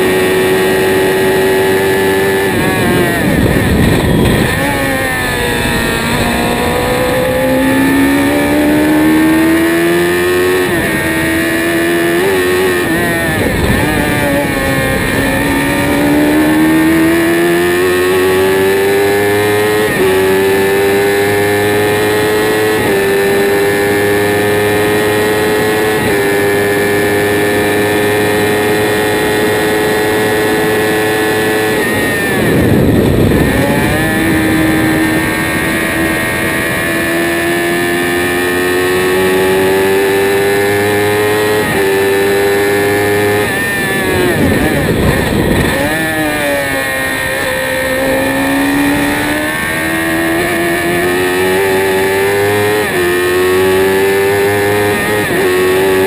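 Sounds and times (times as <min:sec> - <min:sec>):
race car engine at high revs: 0:00.0 - 0:56.0.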